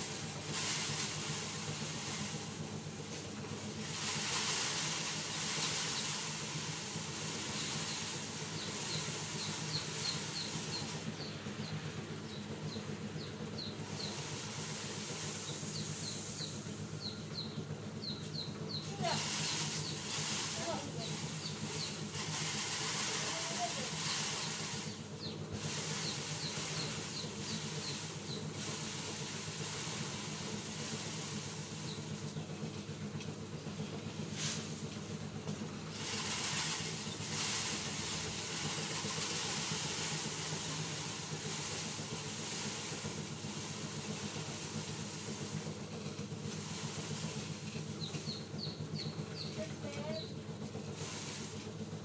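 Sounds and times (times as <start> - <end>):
machine drone with hiss: 0.0 - 52.0
high bird chirps: 15.4 - 18.9, 48.0 - 50.4.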